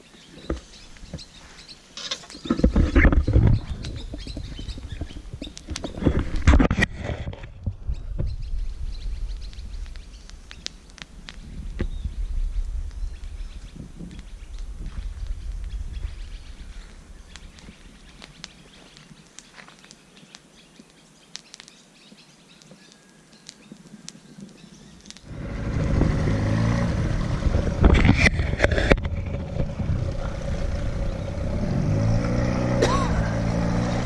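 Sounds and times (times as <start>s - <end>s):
motor engine running: 25.3s - 34.0s.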